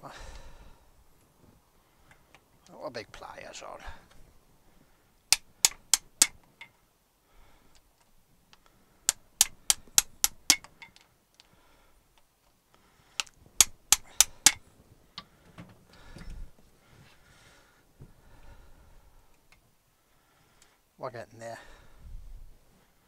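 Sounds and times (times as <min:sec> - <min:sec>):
hammer tapping steel punch: 0:05.3 - 0:06.7, 0:09.1 - 0:11.0, 0:13.2 - 0:14.6.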